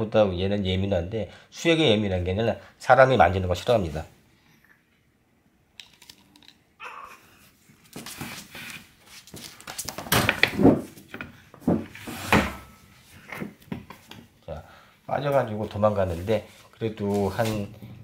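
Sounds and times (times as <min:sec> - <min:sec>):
cloth rustling and scuffling: 0:07.5 - 0:10.2, 0:15.3 - 0:17.7
thumps on wooden floor: 0:10.0 - 0:12.6.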